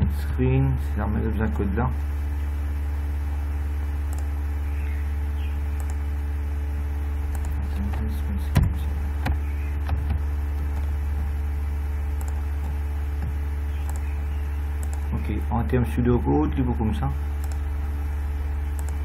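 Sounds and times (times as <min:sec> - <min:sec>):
low electrical hum: 0:00.0 - 0:19.0
sharp clicks: 0:04.1 - 0:04.3, 0:05.8 - 0:06.0, 0:07.3 - 0:11.0, 0:12.1 - 0:14.1, 0:14.8 - 0:15.1, 0:17.4 - 0:17.7, 0:18.7 - 0:19.0.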